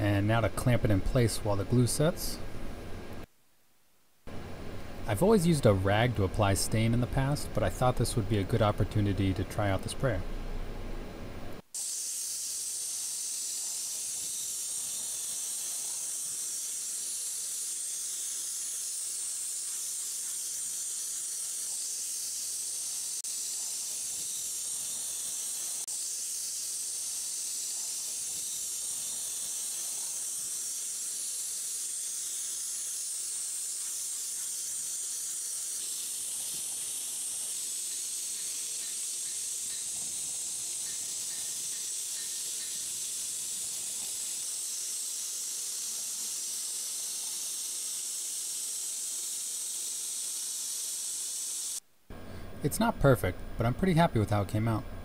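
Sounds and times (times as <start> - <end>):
spray gun hissing: 11.6 - 51.8.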